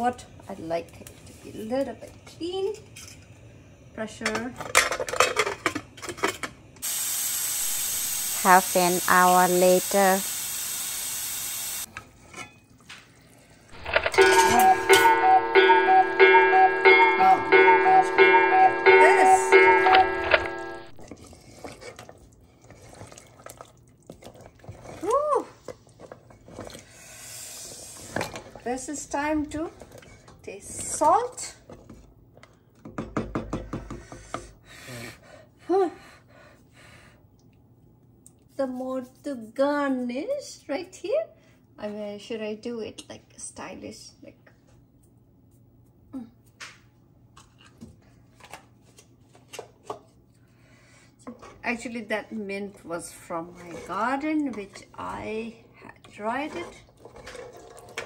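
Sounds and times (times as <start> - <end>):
short pitched sound: 13.8 - 21.0
spatula stirring stew: 21.0 - 25.0.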